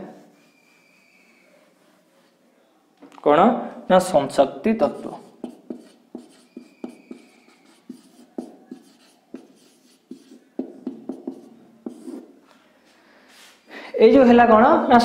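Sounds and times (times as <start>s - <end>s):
marker tip squeaking: 0.4s - 1.7s, 5.0s - 12.3s
marker pen writing on whiteboard: 4.8s - 12.4s.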